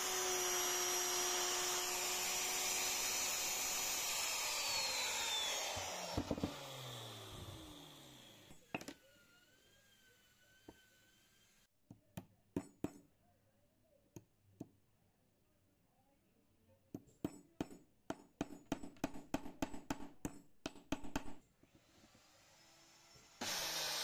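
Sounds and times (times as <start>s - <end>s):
router motor rising whine: 0.0s - 11.6s, 22.2s - 24.0s.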